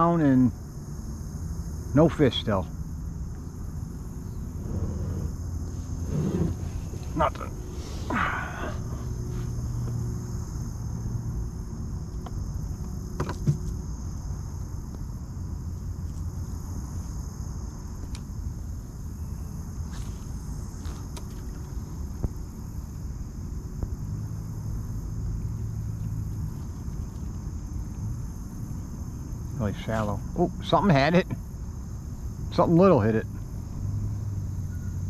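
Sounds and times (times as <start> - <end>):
high drone of insects: 0.0 - 35.0
wind rumble on microphone: 3.8 - 8.1.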